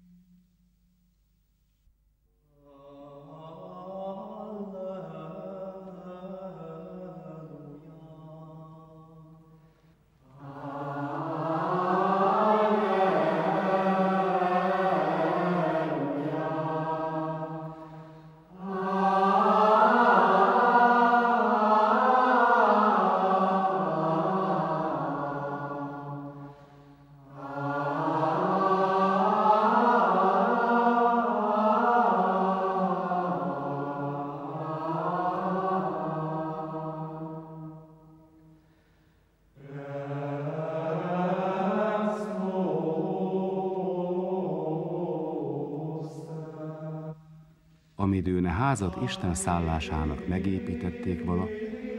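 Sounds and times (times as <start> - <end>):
low voices chanting: 10.2 - 26.6, 27.2 - 37.8, 39.6 - 47.2, 48.0 - 51.9.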